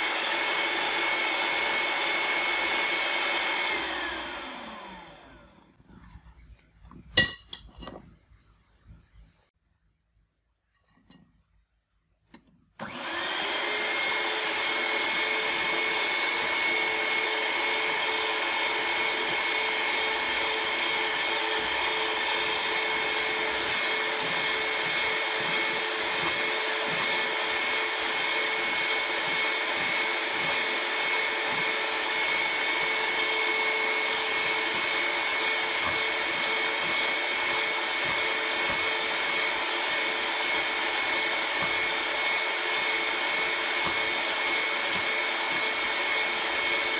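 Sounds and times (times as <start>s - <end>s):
electric hand mixer whining: 0.0s - 5.8s, 12.8s - 46.9s
beaters whipping batter in bowl: 12.8s - 46.9s.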